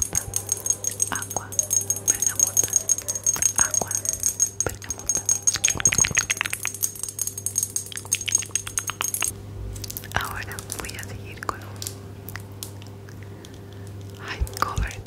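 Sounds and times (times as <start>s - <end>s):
rapid light tapping: 0.0s - 9.3s.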